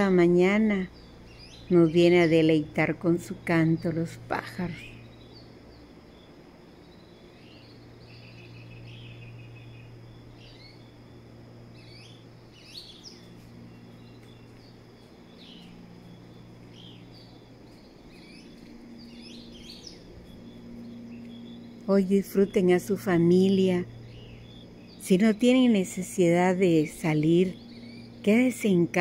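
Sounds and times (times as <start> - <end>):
bird trill: 0.0 - 2.7, 3.8 - 11.0, 11.7 - 29.0
steady low hum: 0.0 - 29.0
birds chirping and whistling: 7.2 - 10.8, 11.8 - 22.7, 23.4 - 26.1, 26.7 - 28.9.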